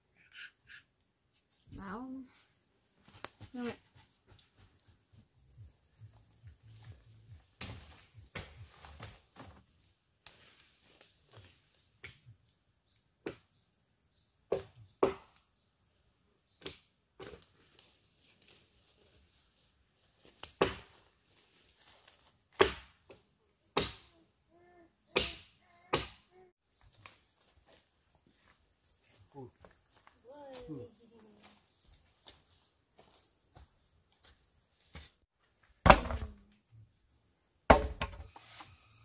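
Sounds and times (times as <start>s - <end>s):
sharp chopping knocks: 22.6s - 23.0s, 25.2s - 26.2s, 37.7s - 38.3s.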